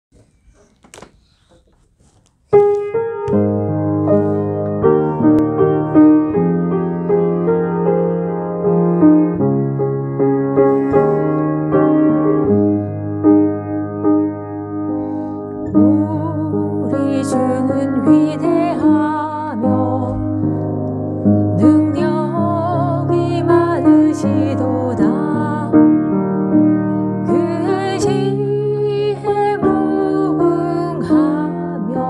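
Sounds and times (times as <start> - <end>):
piano playing sustained chords: 3.2 - 32.0
woman singing: 15.7 - 20.5, 21.6 - 25.9, 27.2 - 32.0.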